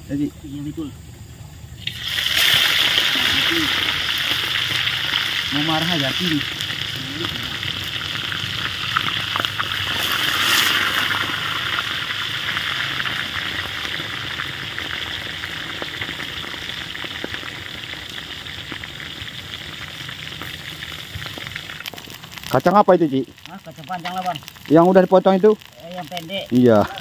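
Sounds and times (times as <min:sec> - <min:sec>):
fish sizzling in hot oil: 0:01.6 - 0:27.0.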